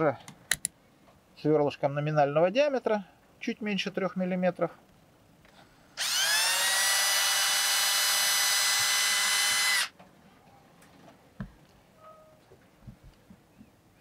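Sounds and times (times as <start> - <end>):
cordless drill running: 6.0 - 9.9.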